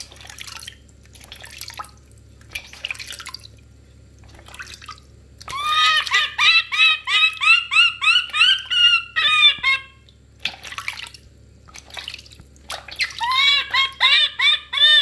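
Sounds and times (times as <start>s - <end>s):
water sloshing in basin: 0.0s - 6.3s, 9.6s - 14.2s
baby monkey squawking cries: 5.5s - 10.0s, 13.2s - 15.0s.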